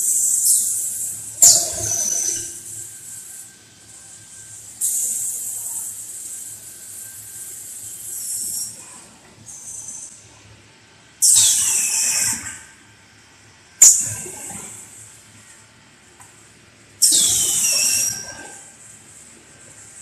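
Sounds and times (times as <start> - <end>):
faint high whine: 0.0 - 13.3.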